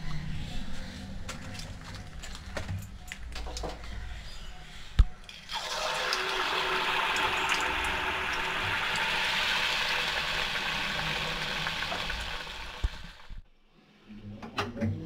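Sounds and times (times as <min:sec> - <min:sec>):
dough sizzling in hot oil: 0:05.5 - 0:13.4.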